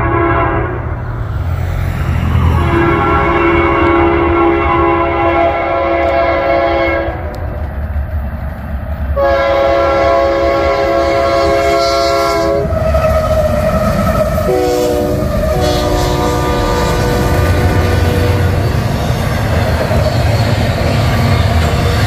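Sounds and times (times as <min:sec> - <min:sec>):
locomotive air horn blasts: 0:00.0 - 0:01.0, 0:02.4 - 0:07.3, 0:09.2 - 0:18.7
locomotive engines rumbling: 0:00.0 - 0:22.0
rail joints clattering: 0:15.2 - 0:22.0.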